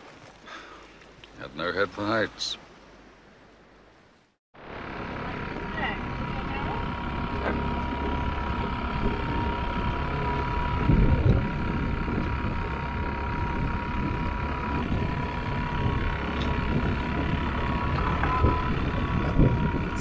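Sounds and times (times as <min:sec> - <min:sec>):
boat motor humming: 0:04.6 - 0:20.0
wind buffeting microphone: 0:05.4 - 0:20.0.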